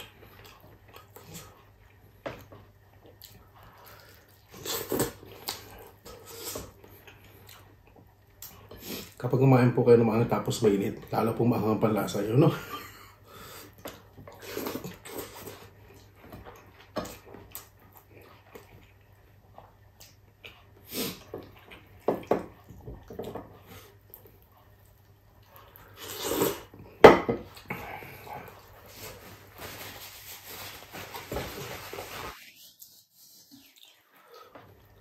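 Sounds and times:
chewing and mouth smacks: 0.0 - 9.2, 13.7 - 26.6, 33.5 - 34.9.

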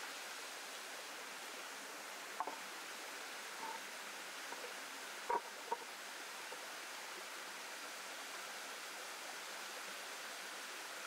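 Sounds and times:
stream water flowing: 0.0 - 11.0.

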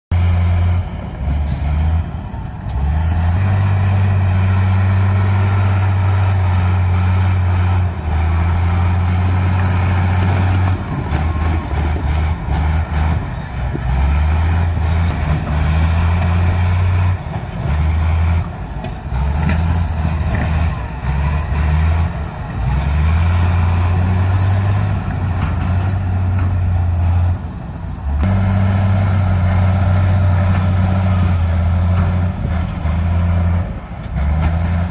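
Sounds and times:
bulldozer diesel engine under load: 0.1 - 34.9.

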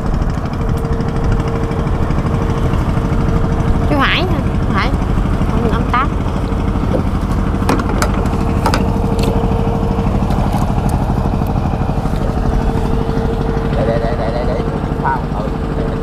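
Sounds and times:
boat engine running: 0.0 - 16.0
sharp knocks: 6.8 - 12.6.

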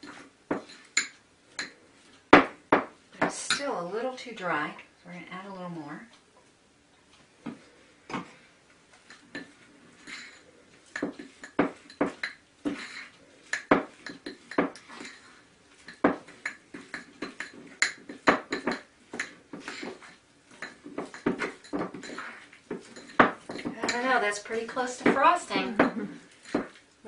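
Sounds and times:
metal spoon clinking in bowl: 9.1 - 26.8.

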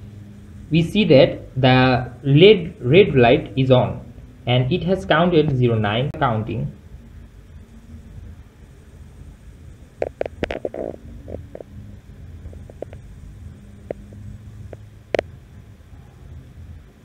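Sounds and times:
low rumbling handling noise: 9.9 - 15.4.

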